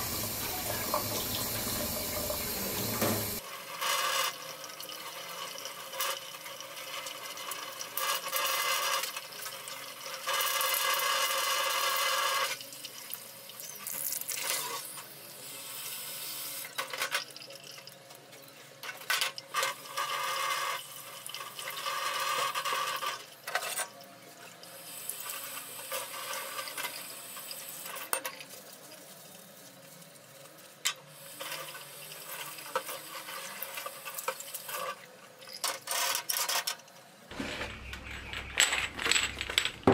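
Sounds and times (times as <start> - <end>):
tap water running into sink: 0.0 - 3.4
grill pan being washed: 0.0 - 13.0, 19.5 - 23.8
sharp clicks and knocks: 37.3 - 39.9.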